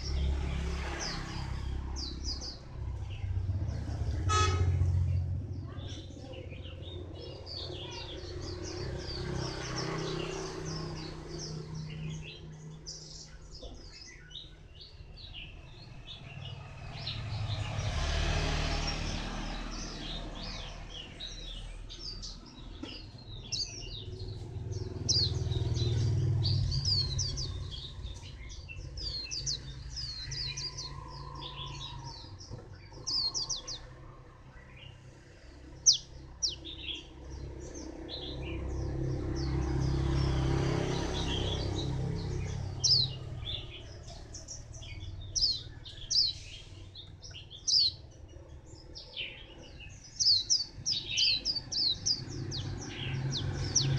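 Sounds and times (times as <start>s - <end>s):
road traffic rumble: 0.0s - 53.9s
bird twittering: 19.8s - 33.9s, 35.8s - 37.1s, 41.2s - 48.1s, 49.0s - 53.9s.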